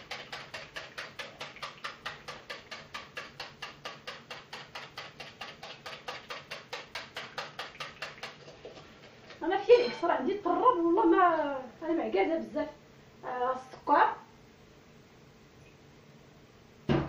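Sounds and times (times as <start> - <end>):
whisk clicking against glass bowl: 0.0 - 8.6.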